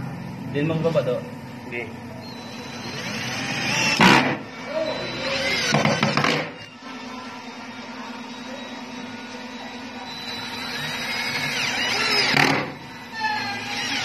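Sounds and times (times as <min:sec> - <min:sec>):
cordless drill driving a screw: 0:02.3 - 0:04.2, 0:10.1 - 0:14.0.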